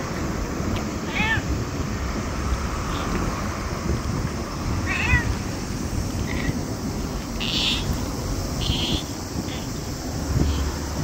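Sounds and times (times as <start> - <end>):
cat meowing: 1.0 - 1.5, 4.8 - 5.4, 7.4 - 7.9.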